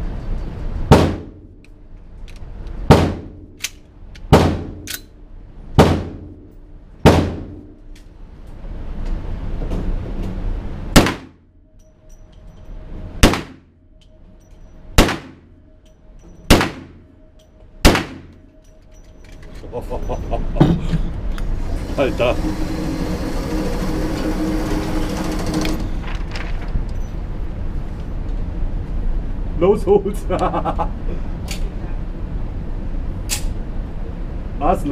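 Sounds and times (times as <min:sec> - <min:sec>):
pistol shots indoors: 0:00.9 - 0:01.5, 0:02.9 - 0:07.8, 0:10.9 - 0:11.4, 0:13.2 - 0:13.7, 0:15.0 - 0:15.6, 0:16.5 - 0:17.2, 0:17.8 - 0:18.6.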